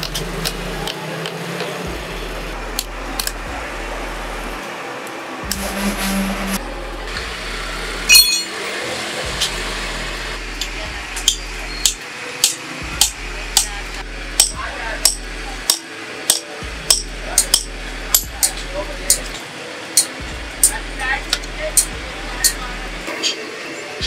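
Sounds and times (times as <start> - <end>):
steady low hum: 1.8 - 4.7, 5.4 - 8.4
ringing metallic clink: 8.1 - 8.6.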